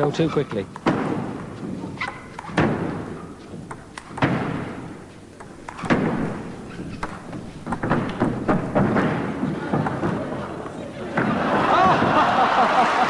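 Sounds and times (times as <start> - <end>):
table tennis ball hitting bats: 0.5 - 10.2
crowd noise: 8.6 - 13.0.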